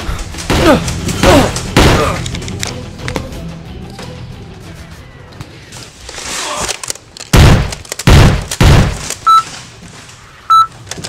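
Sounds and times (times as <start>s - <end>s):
short electronic beeps: 9.3s - 9.5s, 10.5s - 10.7s.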